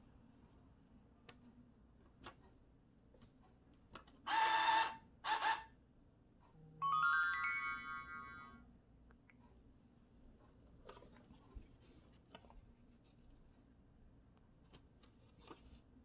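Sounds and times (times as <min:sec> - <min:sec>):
phone alert chime rising notes: 0:06.8 - 0:08.7.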